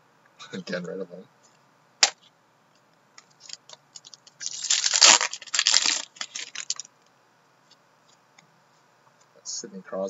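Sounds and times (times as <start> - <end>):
card packaging crinkling and tearing: 3.4 - 6.9.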